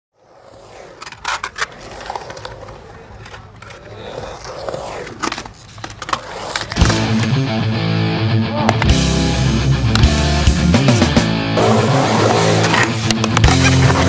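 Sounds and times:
skateboard rolling: 0.1s - 7.4s, 11.6s - 14.0s
skateboard clacking on ground: 0.5s - 7.1s
rock guitar music: 6.8s - 14.0s.

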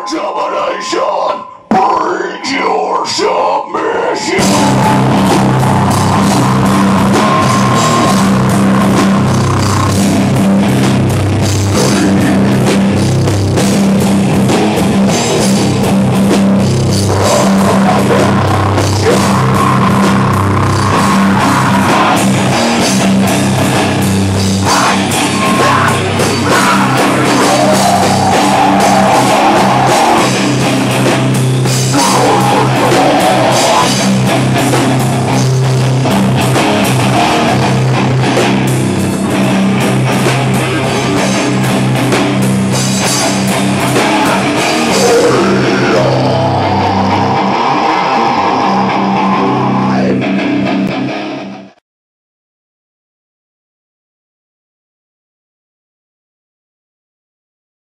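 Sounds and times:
distorted guitar: 0.0s - 51.8s
drum kit: 4.3s - 51.4s
electric bass: 4.3s - 51.8s.

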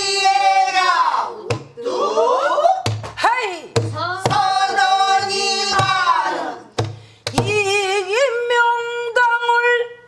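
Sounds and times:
barrel drum thumps: 1.5s - 1.8s, 2.8s - 7.8s.

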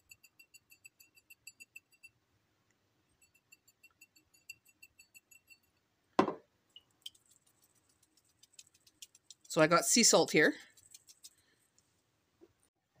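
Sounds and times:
louder thump: 6.2s - 6.4s.

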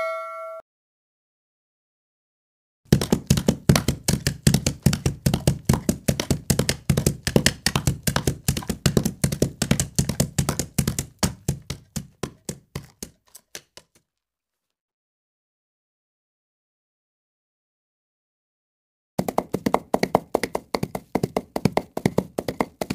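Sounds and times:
horses galloping: 2.9s - 14.0s, 19.2s - 22.9s.

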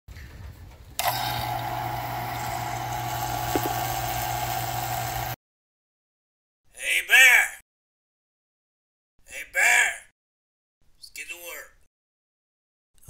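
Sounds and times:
vacuum pump humming and hissing: 1.0s - 5.4s.

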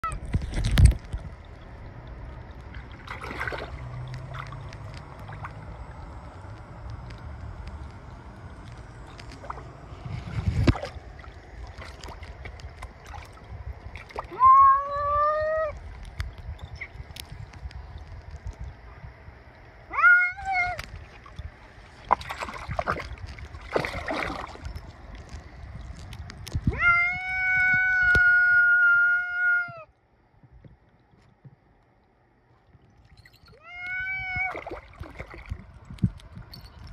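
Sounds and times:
low rumble: 0.0s - 28.7s
water splashing around swimming cat: 0.1s - 14.6s, 20.5s - 28.4s, 32.5s - 36.9s
cat meowing: 19.9s - 20.8s, 26.7s - 29.9s, 33.5s - 34.6s.

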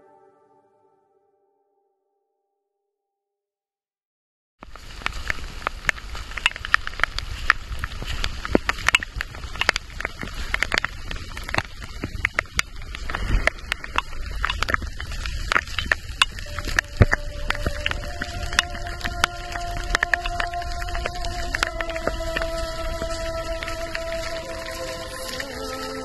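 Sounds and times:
raindrops ticking: 4.6s - 26.0s
low rumble: 5.5s - 26.0s.

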